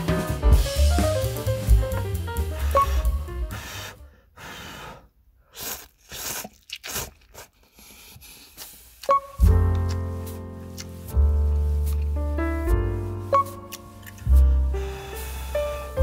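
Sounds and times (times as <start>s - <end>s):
background music with drum beat: 0.0s - 3.7s, 9.4s - 11.2s
person slurping noodles: 5.4s - 9.2s.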